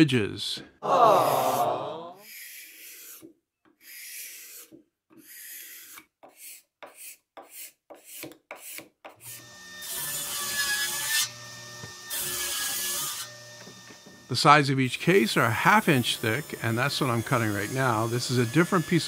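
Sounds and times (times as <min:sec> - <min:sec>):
card scraper rasping on wood: 0:02.2 - 0:09.4.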